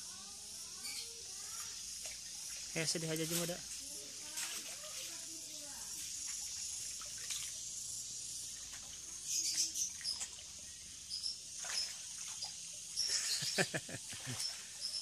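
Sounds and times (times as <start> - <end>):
water sloshing from wading: 6.1 - 7.7, 8.5 - 10.8, 11.5 - 13.1, 14.0 - 15.0
sharp splashes: 6.3 - 7.6, 11.6 - 14.9.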